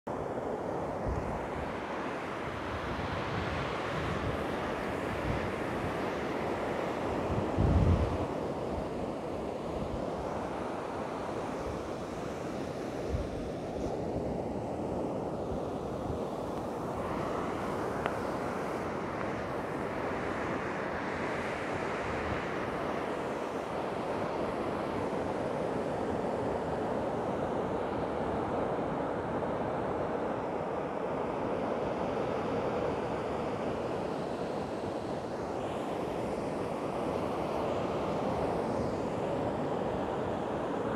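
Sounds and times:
surf washing over sand: 0.1 - 40.9
wind on microphone: 0.9 - 29.6.

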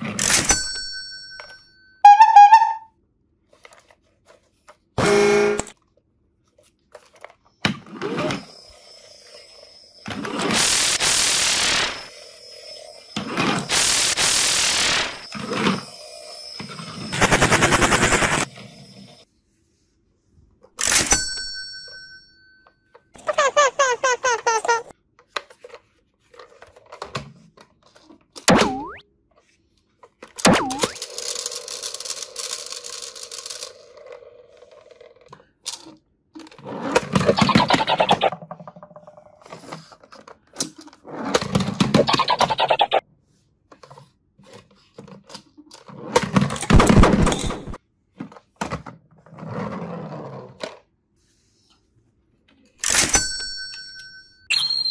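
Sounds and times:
toy train motor and gears running: 8.0 - 19.3, 30.8 - 35.8.

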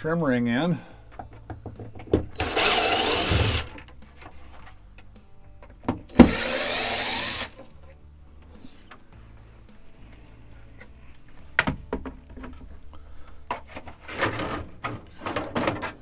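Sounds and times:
cordless drill driving screws: 2.4 - 3.8, 6.1 - 7.6.

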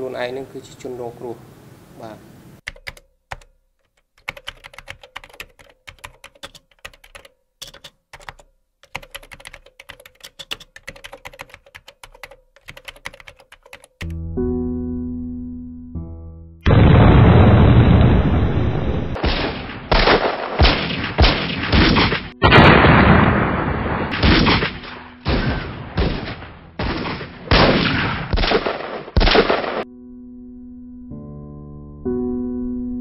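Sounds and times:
loud gunfire blast: 19.0 - 29.8
single gunshots: 19.1 - 29.8.

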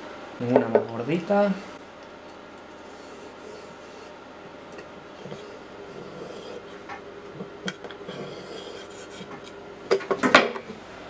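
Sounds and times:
pencil scratching on wood: 2.9 - 4.2, 5.2 - 6.8, 8.1 - 9.5.

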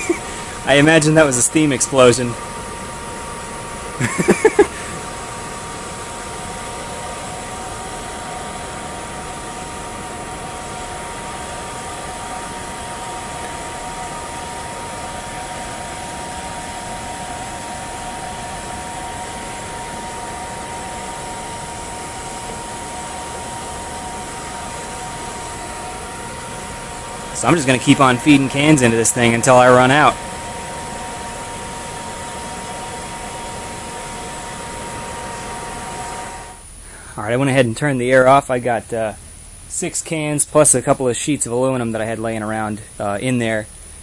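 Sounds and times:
electric air blower whine: 0.0 - 44.0.

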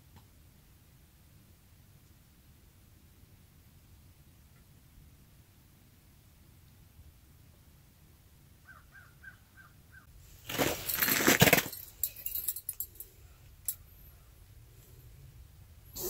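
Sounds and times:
camera handling rustling and clattering: 10.5 - 12.8.

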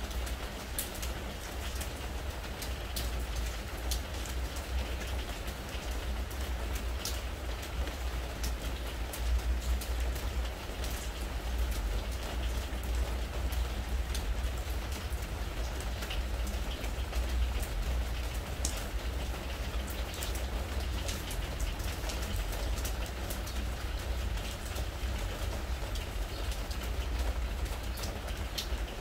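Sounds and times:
rain on a wooden deck: 0.0 - 29.0.

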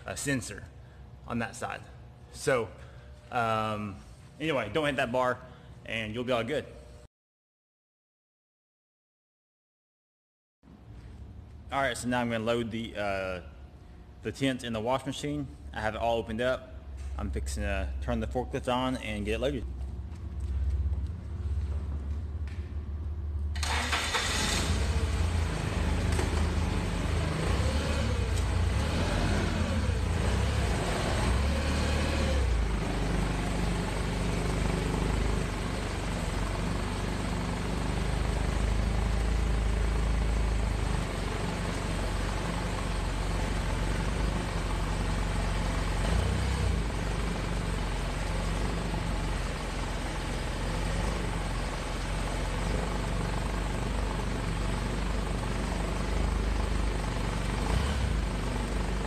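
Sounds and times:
forklift engine running: 19.8 - 59.0.

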